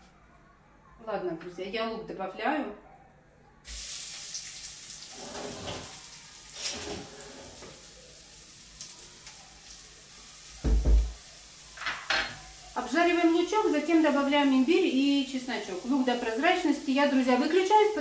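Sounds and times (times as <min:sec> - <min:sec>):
onion sizzling in oil: 0:03.7 - 0:18.0
loud thump: 0:10.6 - 0:11.2.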